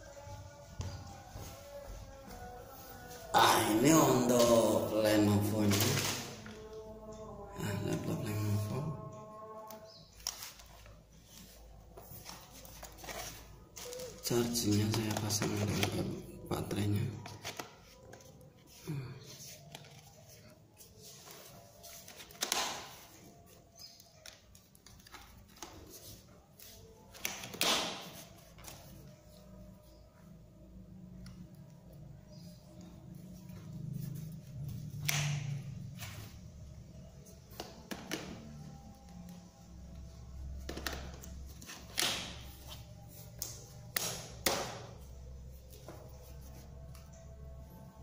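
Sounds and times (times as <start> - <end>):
packaging rustling: 10.2 - 16.2.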